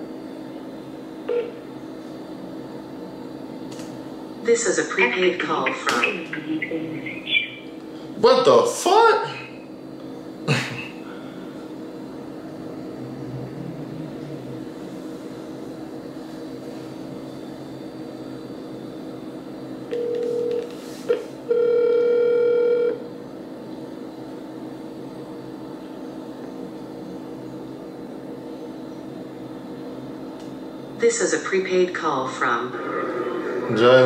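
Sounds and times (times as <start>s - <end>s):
faint steady hum: 0.0s - 34.0s
phone call tone: 1.2s - 1.6s, 19.9s - 20.7s, 21.5s - 23.0s
harsh phone tone: 19.9s - 20.7s, 21.5s - 23.0s.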